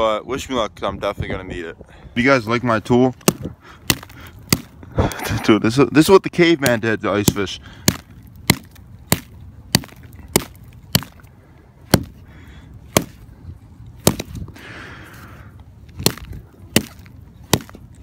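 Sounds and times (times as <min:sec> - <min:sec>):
rock pounding on ice: 0:03.2 - 0:04.7, 0:06.6 - 0:11.2, 0:11.9 - 0:12.2, 0:16.0 - 0:17.8.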